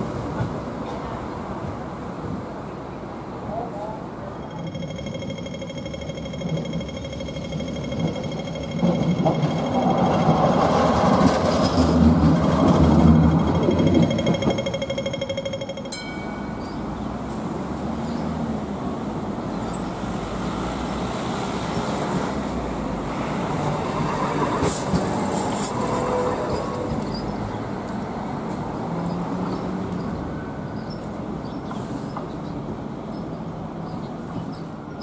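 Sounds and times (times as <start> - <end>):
light rail car rumbling: 0.0 - 35.0
wheel screech: 24.1 - 27.6.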